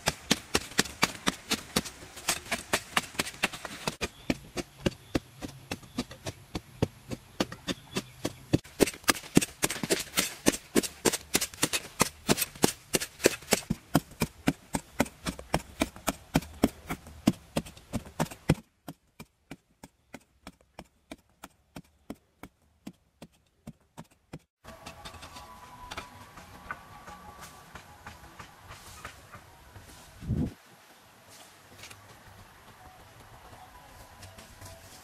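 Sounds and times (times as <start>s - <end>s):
digging tool chipping hard soil: 0.0s - 18.7s.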